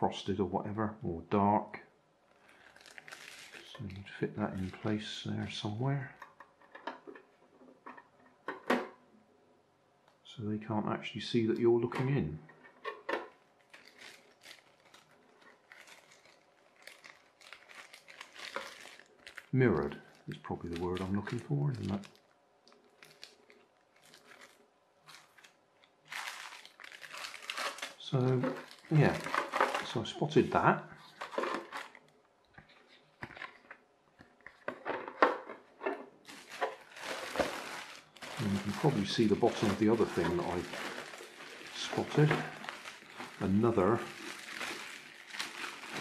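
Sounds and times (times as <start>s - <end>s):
plastic bag crinkling: 2.2s - 7.0s, 12.6s - 33.8s, 36.2s - 46.0s
paper and plastic film rustling: 2.3s - 7.2s, 11.9s - 46.0s.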